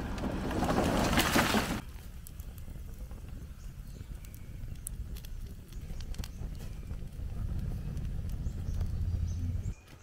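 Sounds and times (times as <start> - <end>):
wood fire crackling and popping: 0.0 - 10.0.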